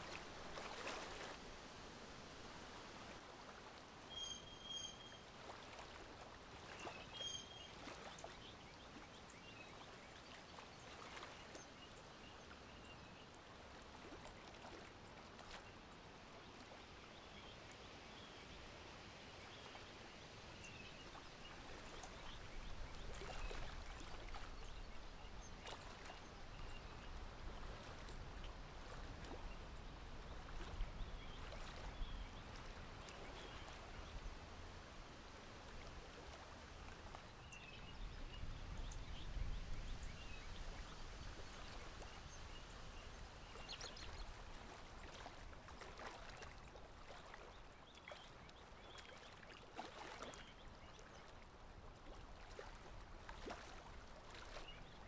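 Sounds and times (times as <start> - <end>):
breeze and water hiss: 0.0 - 7.7
bird chirps: 4.1 - 5.2.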